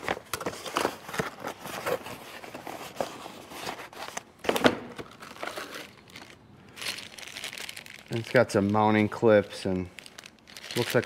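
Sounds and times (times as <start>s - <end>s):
cardboard box rustling: 0.0s - 4.2s.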